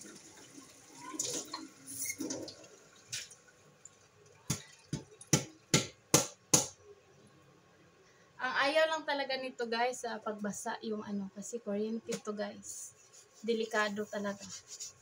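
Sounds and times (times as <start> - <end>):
water splashing in metal sink: 0.0 - 5.7.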